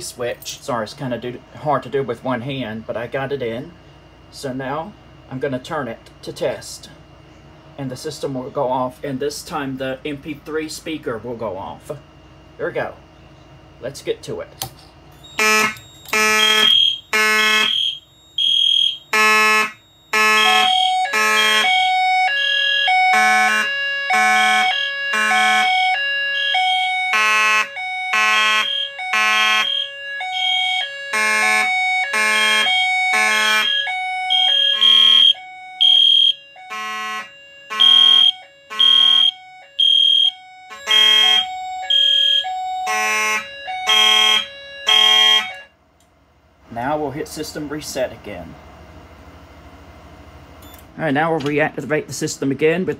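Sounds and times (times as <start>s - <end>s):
fire alarm horns pulsing: 15.1s - 45.8s.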